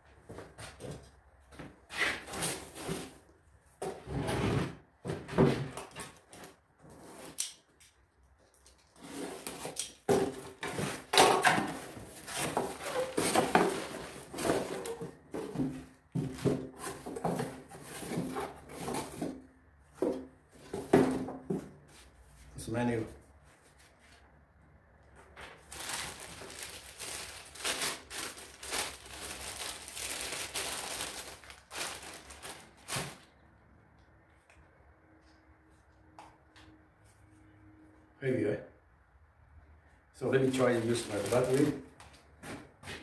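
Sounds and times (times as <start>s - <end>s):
cardboard box scraping and knocking: 11.8s - 21.8s
plastic bag sliding: 25.6s - 33.3s, 40.8s - 41.8s.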